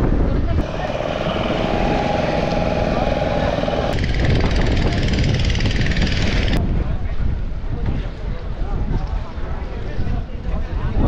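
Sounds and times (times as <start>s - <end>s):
motorboat engine running: 0.6s - 6.6s.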